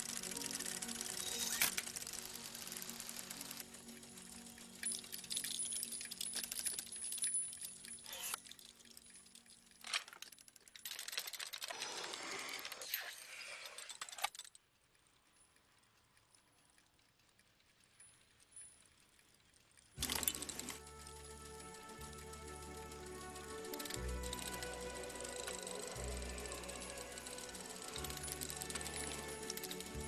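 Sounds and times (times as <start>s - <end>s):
sharp clicks: 0.0s - 9.8s
clockwork clicking and rattling: 0.0s - 30.0s.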